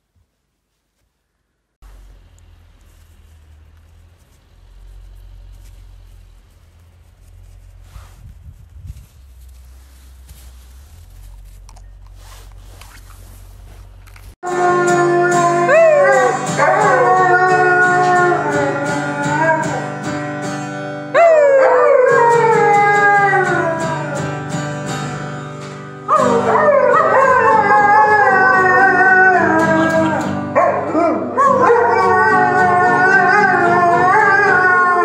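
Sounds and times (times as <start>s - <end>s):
dog howling: 14.4s - 20.2s, 21.1s - 24.5s, 26.1s - 35.0s
strummed acoustic guitar: 14.4s - 21.2s, 22.1s - 28.7s, 29.3s - 34.2s.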